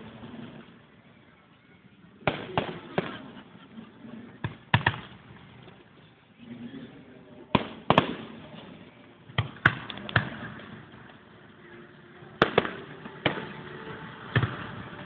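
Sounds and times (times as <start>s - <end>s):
fireworks bangs: 2.2s - 3.6s, 4.3s - 5.5s, 7.5s - 11.2s, 12.4s - 15.0s.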